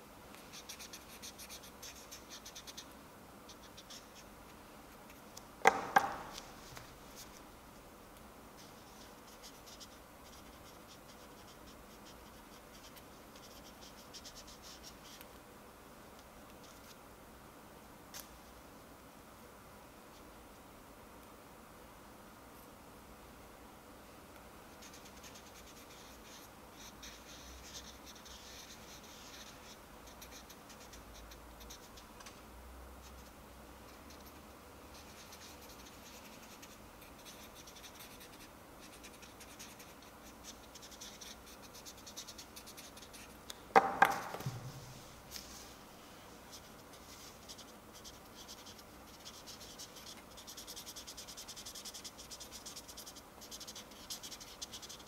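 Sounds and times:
marker scratching on a ball: 0:00.4 - 0:04.3, 0:05.1 - 0:07.4, 0:08.6 - 0:15.3, 0:16.6 - 0:17.0, 0:24.8 - 0:32.4, 0:33.0 - 0:43.4, 0:46.5 - 0:55.0
loud knock: 0:05.6 - 0:06.3, 0:43.8 - 0:44.8.

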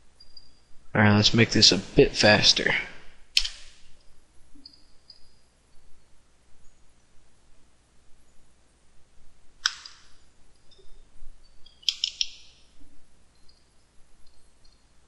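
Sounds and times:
computer mouse click: 0:11.8 - 0:12.4.

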